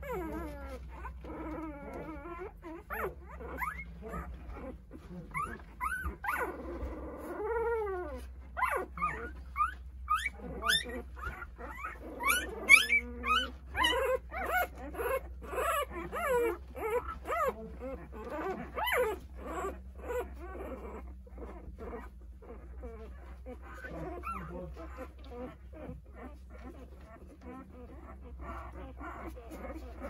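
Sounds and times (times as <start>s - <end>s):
puppies whimpering and squealing: 0.0s - 30.0s.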